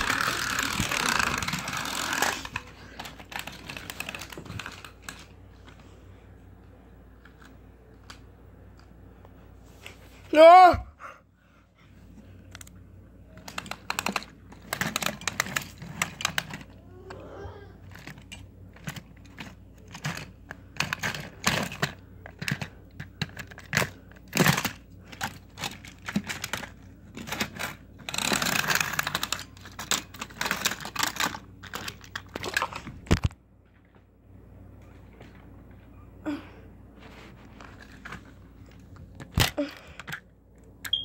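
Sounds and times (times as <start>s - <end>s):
toy trains clattering: 0.0s - 5.3s, 13.4s - 16.8s, 17.8s - 32.8s.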